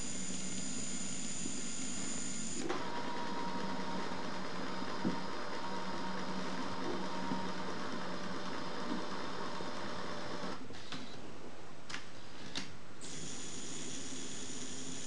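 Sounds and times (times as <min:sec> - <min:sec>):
electric motor whine: 0:00.0 - 0:09.1, 0:13.0 - 0:15.0.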